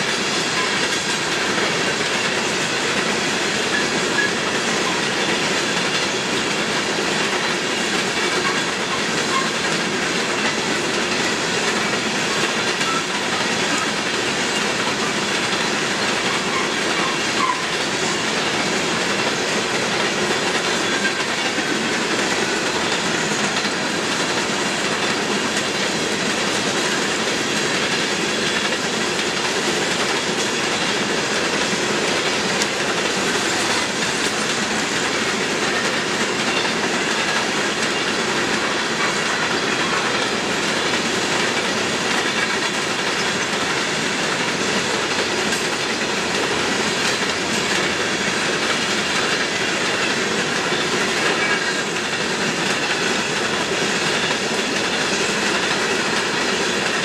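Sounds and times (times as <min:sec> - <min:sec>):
freight train wheels clacking: 0:00.0 - 0:57.0
wheel flange squeals: 0:15.6 - 0:18.4.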